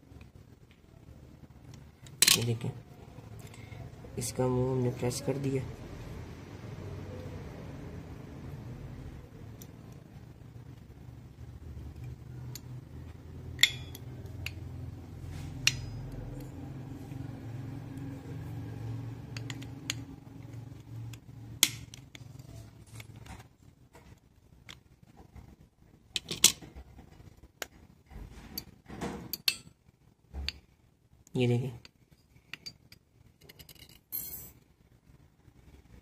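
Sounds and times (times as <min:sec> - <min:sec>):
low background hum: 0:00.0 - 0:36.0
small metal clicks and clinks: 0:13.6 - 0:14.6.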